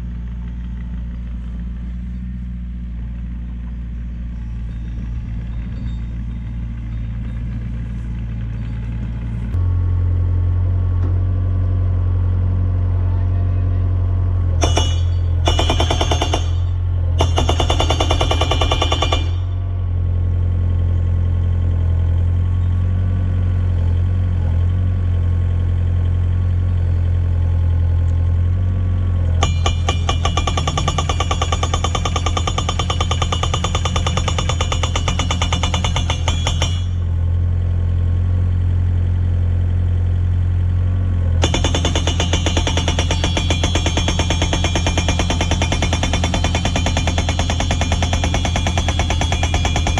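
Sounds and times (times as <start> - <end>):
excavator engine running: 0.0 - 49.9
hydraulic rock breaker hammering: 14.6 - 19.6, 29.4 - 37.2, 41.4 - 49.9.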